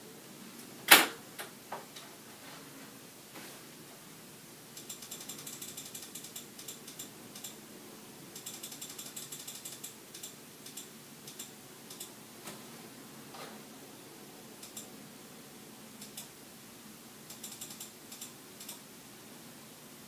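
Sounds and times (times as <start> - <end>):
faint room hum: 0.0 - 20.0
computer mouse clicking: 4.8 - 7.6, 8.4 - 12.1, 14.6 - 14.9, 16.0 - 16.3, 17.3 - 18.8.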